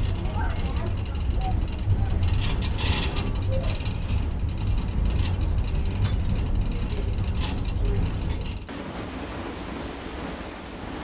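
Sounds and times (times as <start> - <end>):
ferry engine rumble: 0.0 - 11.0.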